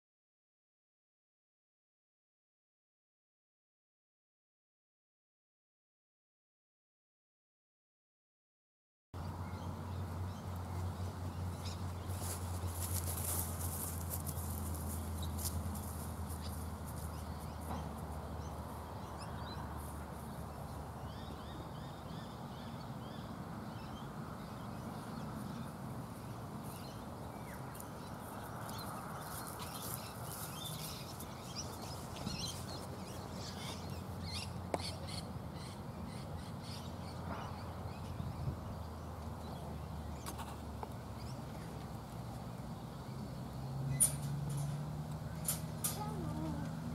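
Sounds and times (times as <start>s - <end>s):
birds chirping and calling: 9.2s - 41.9s, 42.9s - 46.9s.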